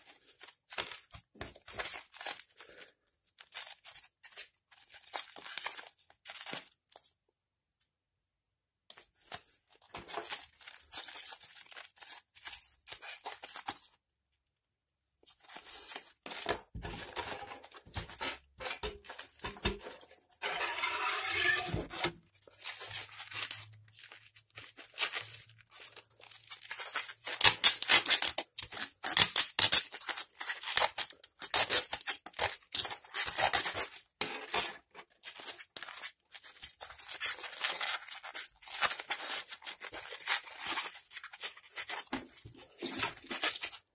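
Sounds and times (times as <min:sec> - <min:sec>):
battery foil tearing and crinkling: 0:01.7 - 0:06.8, 0:10.0 - 0:13.8, 0:22.5 - 0:43.9.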